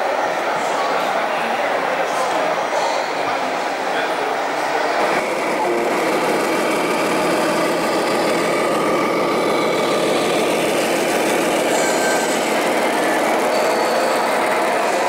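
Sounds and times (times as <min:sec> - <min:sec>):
engine idling: 0:05.2 - 0:15.0.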